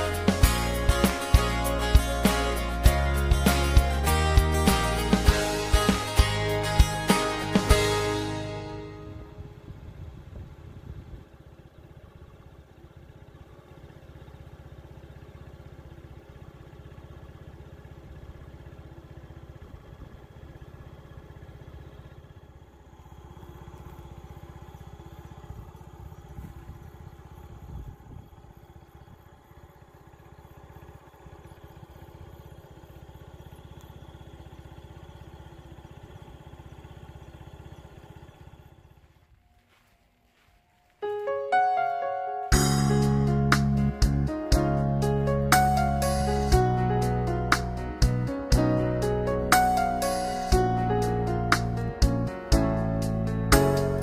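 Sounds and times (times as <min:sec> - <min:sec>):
steady low rumble: 0:00.0 - 0:12.5, 0:22.2 - 0:33.8, 0:42.5 - 0:54.0.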